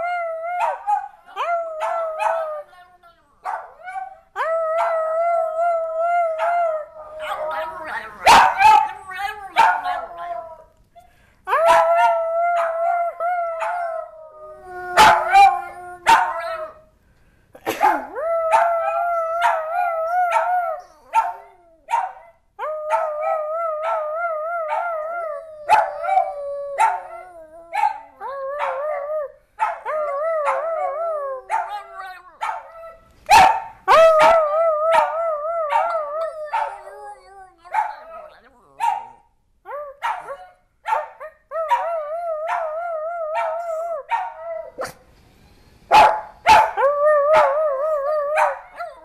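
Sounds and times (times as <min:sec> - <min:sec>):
small dog howling: 0:11.5 - 0:16.8, 0:18.0 - 0:22.0, 0:22.6 - 0:33.0, 0:33.9 - 0:39.1, 0:41.5 - 0:44.9, 0:46.6 - 0:49.0.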